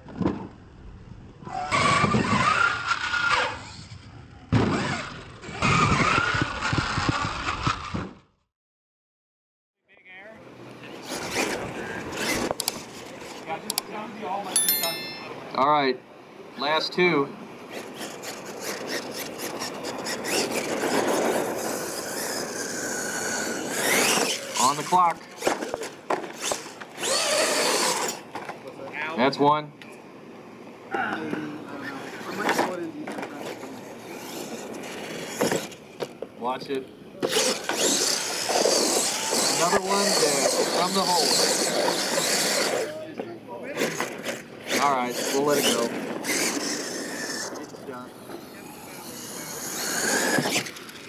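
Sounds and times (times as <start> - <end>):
tires rumbling on dirt: 0.0 - 8.3
tires churning dirt: 1.4 - 8.0, 17.6 - 28.7, 37.2 - 43.0, 43.6 - 51.0
electric motors whining: 17.7 - 28.2, 37.2 - 43.0, 43.9 - 51.0.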